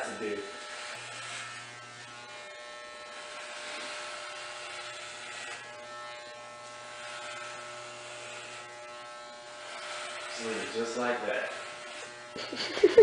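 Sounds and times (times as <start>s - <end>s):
electric hair clippers buzzing: 0.0s - 13.0s.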